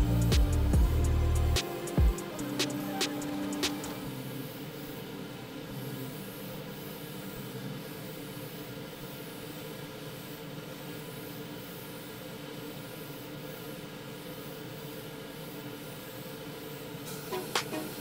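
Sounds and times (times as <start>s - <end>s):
low steady hum: 0.0s - 5.5s
airbrush hissing: 0.0s - 18.0s.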